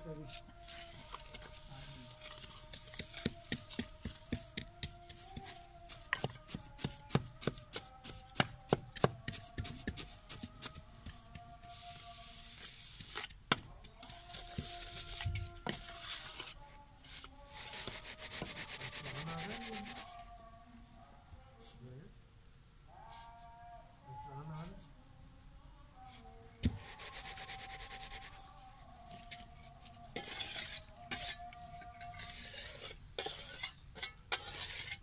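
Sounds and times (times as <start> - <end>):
trowel scraping gritty sand: 11.6 - 13.4, 14.0 - 20.2, 29.3 - 35.0.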